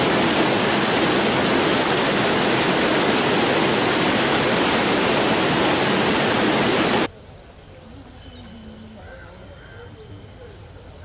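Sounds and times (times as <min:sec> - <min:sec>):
river water rushing over rocks: 0:00.0 - 0:07.1.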